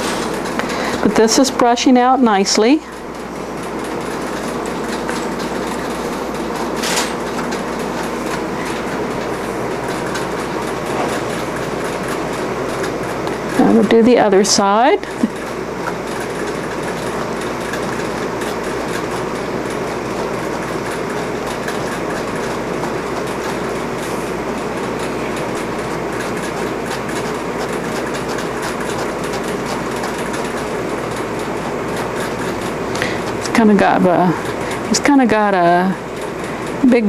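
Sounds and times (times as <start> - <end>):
brush raking through wool: 15.8 - 34.6.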